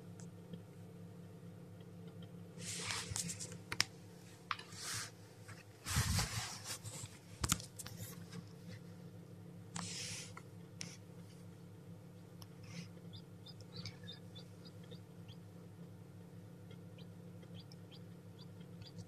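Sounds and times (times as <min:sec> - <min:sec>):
steady low hum: 0:00.0 - 0:19.0
scratching in wood shavings: 0:05.8 - 0:07.2.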